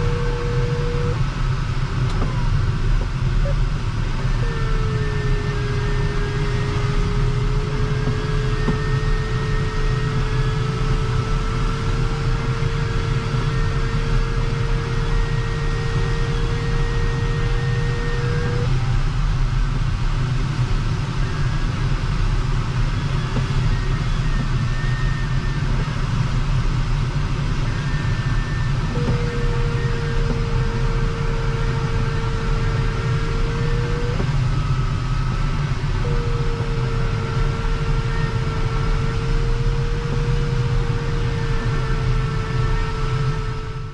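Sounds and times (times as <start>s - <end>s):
rushing airflow in cockpit: 0.0s - 43.9s
variometer audio tone: 0.0s - 43.9s.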